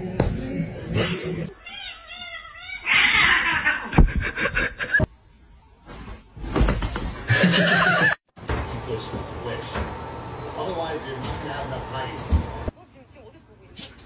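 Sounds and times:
cats hissing: 0.9 - 4.0
cat yowling: 1.5 - 3.9.

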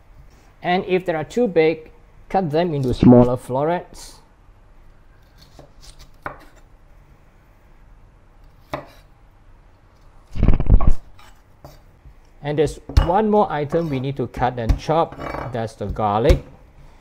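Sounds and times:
knife chopping on a wooden board: 5.4 - 6.6, 8.7 - 9.0, 12.7 - 16.6.

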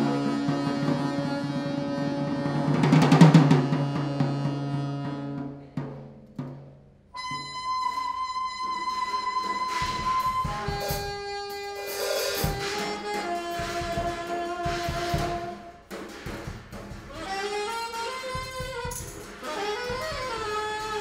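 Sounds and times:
saxophone low drone: 0.0 - 5.6
drum kit: 0.0 - 21.0
high held tone: 7.2 - 15.6
cymbal crash: 8.9 - 18.0.

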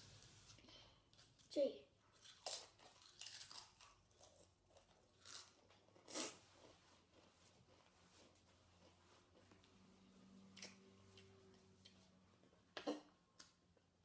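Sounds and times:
tortilla chip crunching: 2.1 - 8.9.

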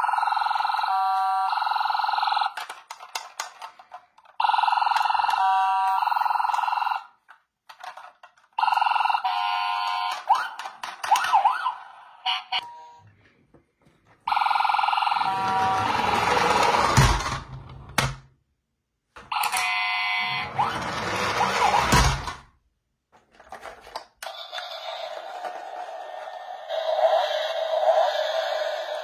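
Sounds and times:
toy beeping siren: 0.0 - 2.6, 4.4 - 7.2, 8.6 - 13.0, 14.3 - 16.8, 19.3 - 22.2
warbling electronic siren: 14.3 - 16.8, 20.1 - 22.2.

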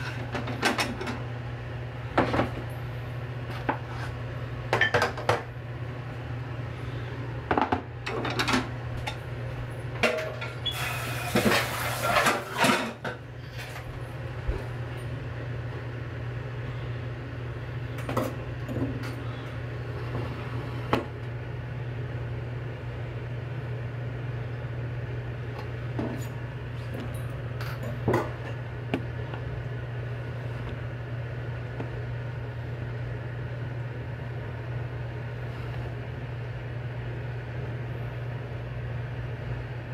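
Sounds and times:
steady low hum: 0.0 - 10.6, 12.3 - 39.9
utensils and dishes clattering: 10.0 - 13.8.

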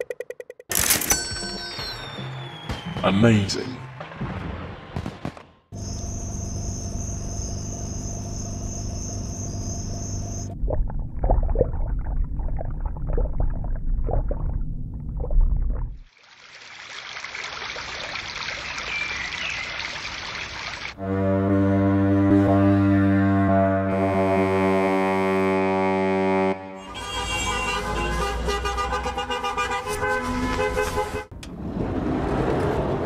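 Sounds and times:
hum with high whine: 5.8 - 10.6
low rumble: 10.5 - 16.0
bubbling and gurgling water: 10.5 - 20.8
deep horn: 21.0 - 31.2.

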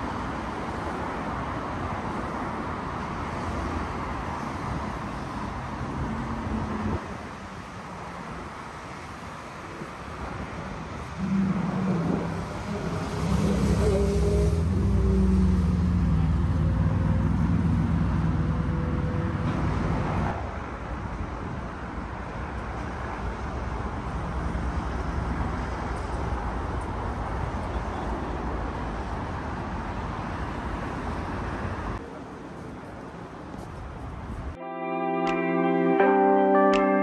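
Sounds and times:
traffic rush: 0.0 - 37.0
low engine drone: 11.1 - 20.3.

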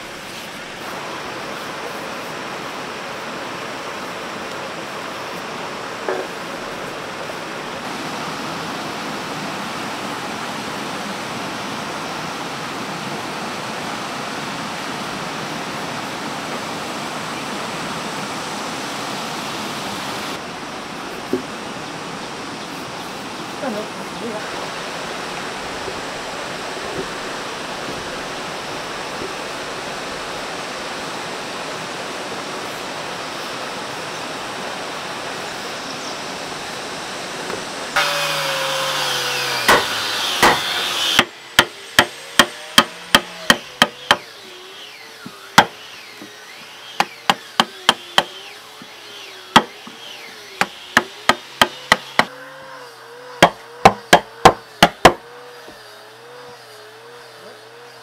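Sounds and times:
rain hissing: 0.0 - 38.0
hammer striking: 39.6 - 44.3, 45.6 - 46.3, 47.0 - 48.4, 49.5 - 50.0, 50.6 - 52.3, 53.4 - 55.2.

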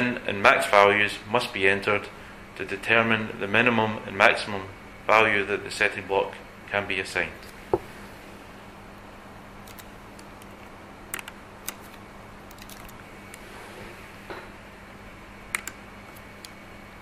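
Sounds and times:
faint steady hum: 0.0 - 17.0
keyboard and mouse clicks: 9.6 - 13.0, 15.5 - 16.6.

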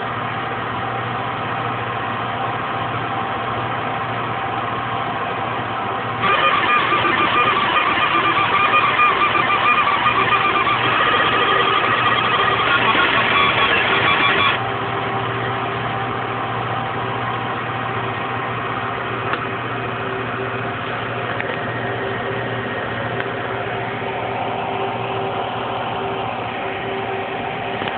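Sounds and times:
machine hum with low drone: 0.0 - 27.9
laser machine buzzing: 6.2 - 14.7.

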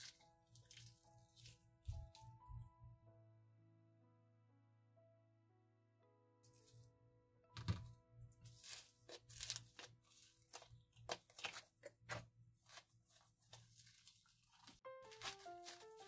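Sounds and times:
simple tune: 14.8 - 16.0.

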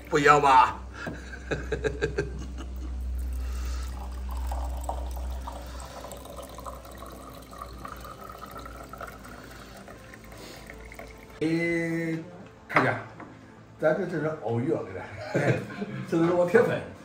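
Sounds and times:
low hum: 0.7 - 6.8
liquid pouring into a cup: 3.0 - 11.4.

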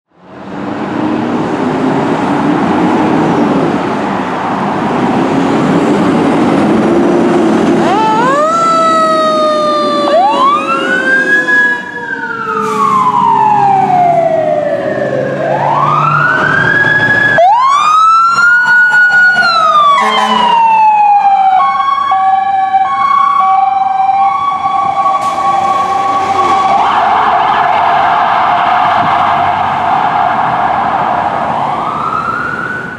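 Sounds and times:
emergency sirens wailing: 0.4 - 32.9
two-tone siren: 7.8 - 32.9
loud horn blast: 10.0 - 13.0, 18.6 - 20.8.

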